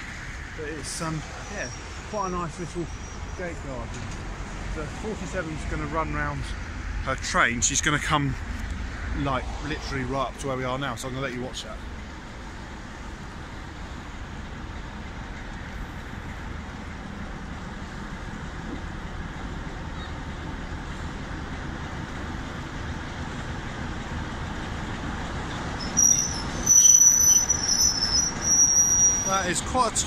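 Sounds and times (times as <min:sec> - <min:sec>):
diesel locomotive engine running: 0:00.0 - 0:30.0
high-pitched wheel squeal: 0:01.4 - 0:03.8, 0:25.5 - 0:29.6.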